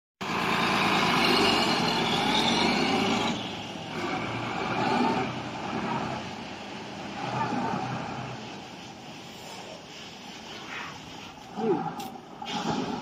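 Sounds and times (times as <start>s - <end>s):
diesel truck engine running: 0.2s - 10.3s.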